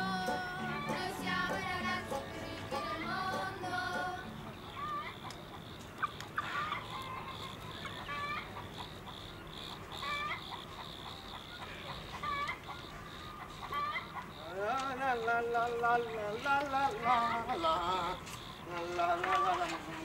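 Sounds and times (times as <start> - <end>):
chickens clucking: 0.0 - 14.4, 15.2 - 20.0.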